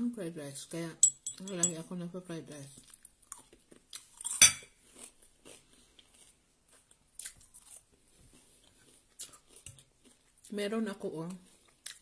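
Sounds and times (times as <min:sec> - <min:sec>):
quiet chewing with crunches: 0:02.7 - 0:10.6, 0:11.2 - 0:12.0.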